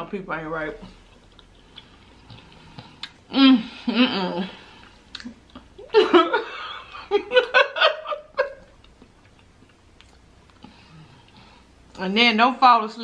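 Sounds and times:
woman laughing: 3.5 - 4.6, 5.8 - 8.7.

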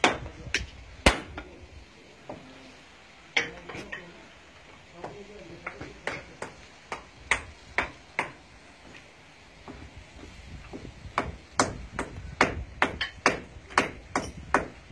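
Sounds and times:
hammer striking stone: 0.0 - 1.5, 5.0 - 8.4, 10.7 - 14.8.

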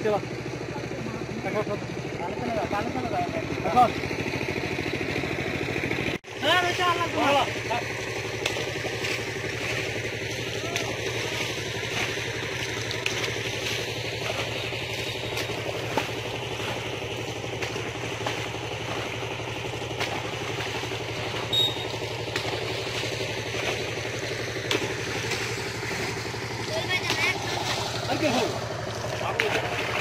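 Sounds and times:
engine droning: 0.0 - 30.0.

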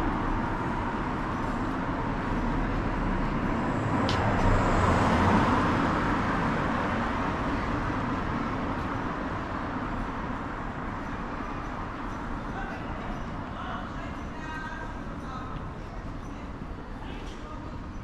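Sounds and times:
hum of passing cars: 0.0 - 12.6.

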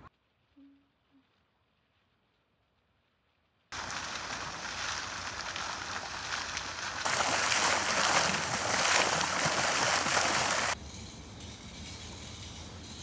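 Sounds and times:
fountain spray falling into pool: 3.7 - 10.8.

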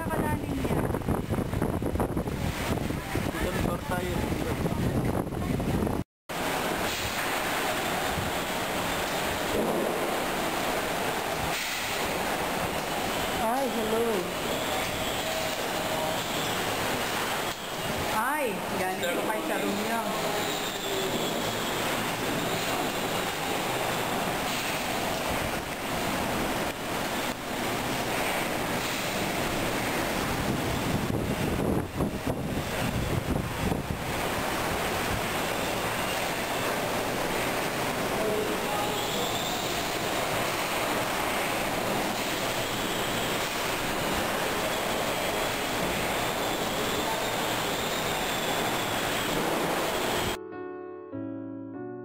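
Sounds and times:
strong wind rushing: 0.0 - 13.1, 21.9 - 35.9
rain beating against window: 0.0 - 50.4.

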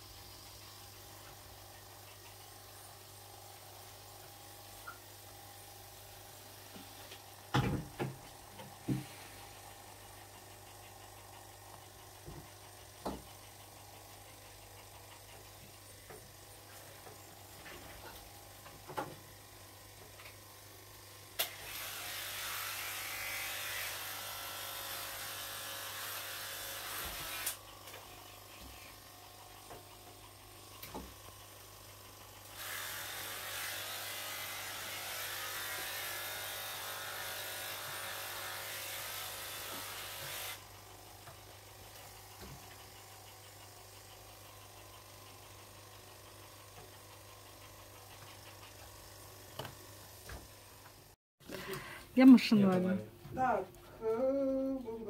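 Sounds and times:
small electric motor whirring: 19.9 - 50.2.

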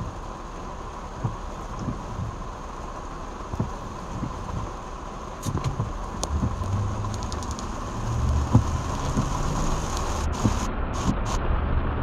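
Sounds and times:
heavy rain on car roof: 0.0 - 12.0
low rumble: 5.4 - 12.0.

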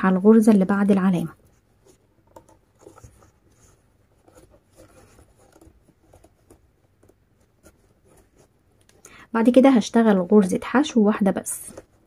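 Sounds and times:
crochet hook rustling cord: 0.1 - 9.0.

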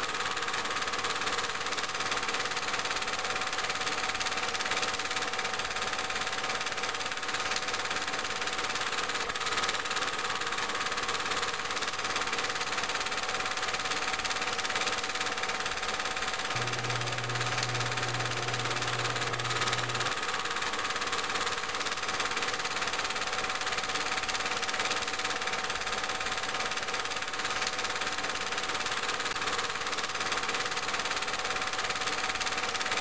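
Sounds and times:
faint hum: 16.6 - 20.2
mechanical whir: 16.6 - 20.2.

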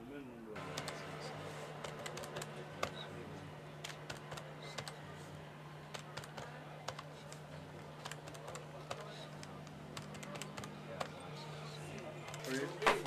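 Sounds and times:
steady low hum: 0.4 - 13.0
calculator keys clicking: 3.9 - 5.0, 5.9 - 7.4, 8.0 - 11.2.

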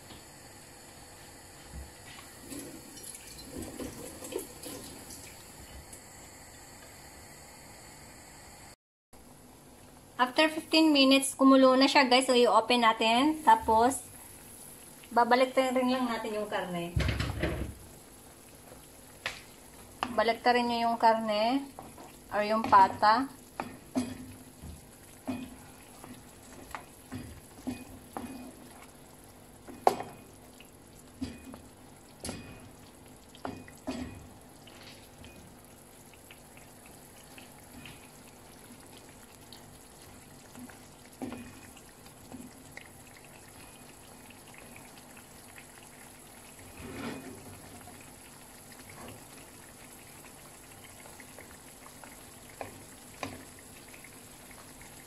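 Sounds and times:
liquid bubbling: 2.4 - 6.7, 17.2 - 55.0.

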